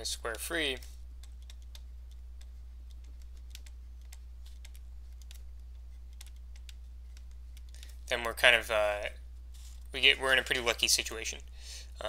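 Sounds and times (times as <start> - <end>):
steady low hum: 0.0 - 12.0
stylus tapping on tablet screen: 1.2 - 7.8.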